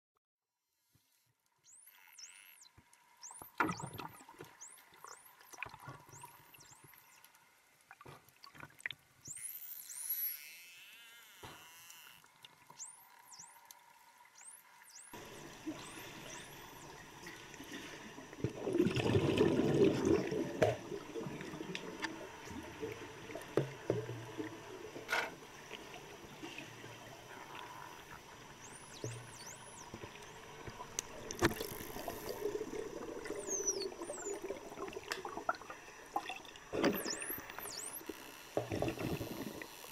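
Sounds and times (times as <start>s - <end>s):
underwater water noise: 1.6s - 10.4s, 11.6s - 39.9s
bubbling rush: 18.1s - 24.8s
underwater clicks: 28.8s - 35.6s.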